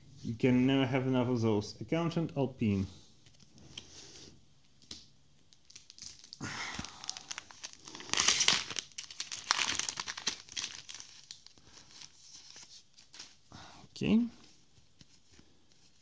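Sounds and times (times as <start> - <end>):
foil wrapper crinkling and tearing: 5.5 - 13.4.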